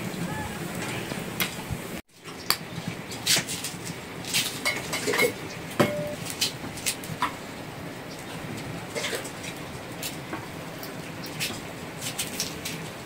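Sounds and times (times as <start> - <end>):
dishes and utensils clinking: 4.6 - 6.2, 8.9 - 9.3.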